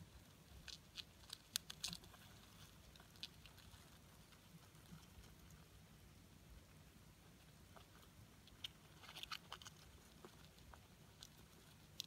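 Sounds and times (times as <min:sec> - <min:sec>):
roaches crawling and scratching: 0:00.0 - 0:12.0.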